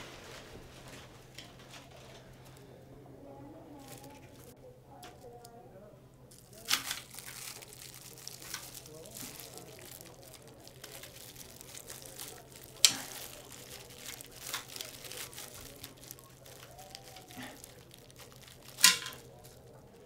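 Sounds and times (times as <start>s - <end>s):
candy wrappers crinkling: 3.4s - 5.6s, 6.3s - 20.0s.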